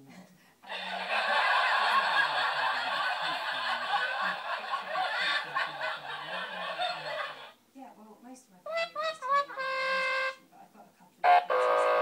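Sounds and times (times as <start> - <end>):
snickering laughter: 0.7 - 7.5.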